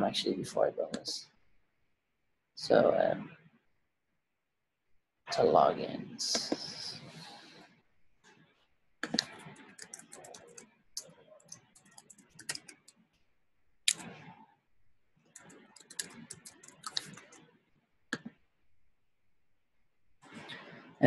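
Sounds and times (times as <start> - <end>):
computer keyboard typing: 9.0 - 13.0, 15.3 - 17.4.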